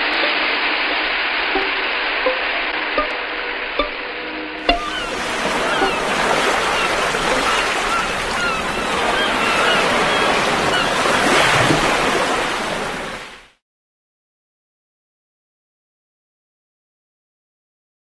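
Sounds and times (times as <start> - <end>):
surf washing onto shore: 0.0 - 13.6.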